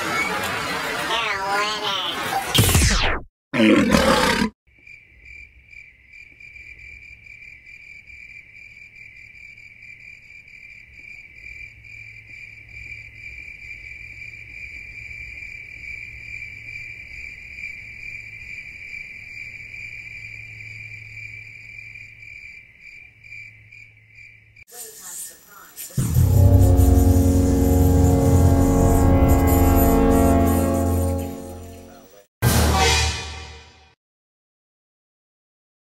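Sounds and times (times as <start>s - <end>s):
crickets chirping: 4.7s - 26.0s
loud burst of sound: 26.0s - 31.7s.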